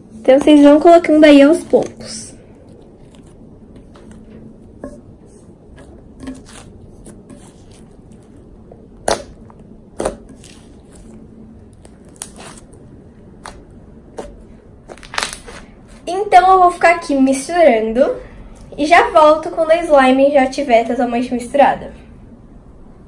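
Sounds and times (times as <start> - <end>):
slime squishing: 1.3 - 16.1.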